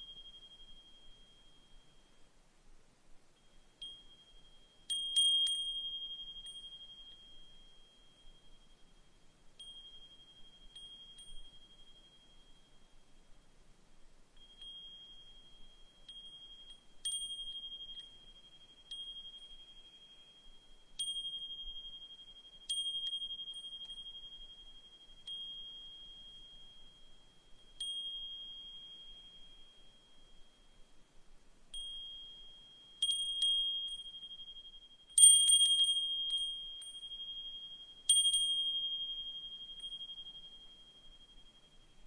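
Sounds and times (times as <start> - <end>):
wind chime ringing: 31.7 - 42.0.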